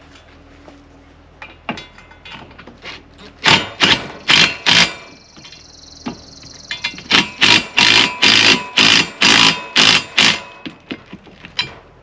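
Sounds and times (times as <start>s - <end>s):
impact driver hammering: 3.4s - 5.2s, 6.8s - 11.1s.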